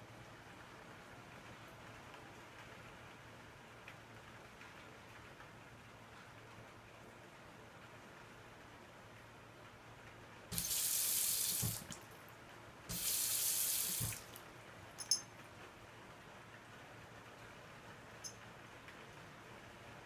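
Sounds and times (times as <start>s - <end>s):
tap water running into basin: 10.5s - 12.2s, 12.9s - 14.5s.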